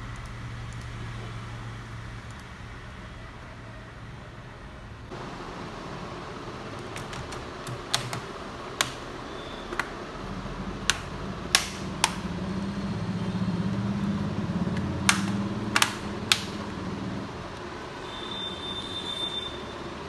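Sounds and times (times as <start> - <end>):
sharp clicks: 0.0 - 1.0, 2.2 - 2.5, 6.8 - 9.1, 10.8 - 12.3, 13.7 - 16.8.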